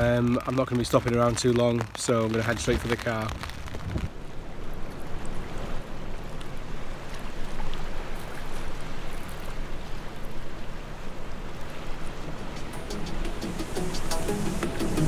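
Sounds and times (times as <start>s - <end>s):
sea breaking against rocks: 0.0s - 10.6s
wind on microphone: 2.8s - 4.2s.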